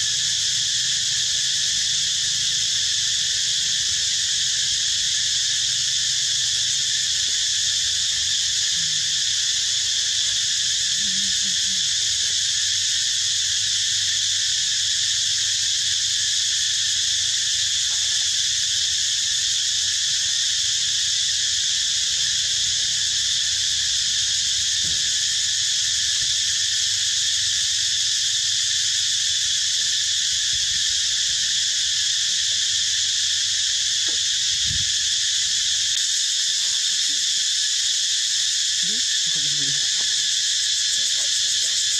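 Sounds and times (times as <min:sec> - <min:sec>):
insect chorus buzzing: 0:00.0 - 0:41.9.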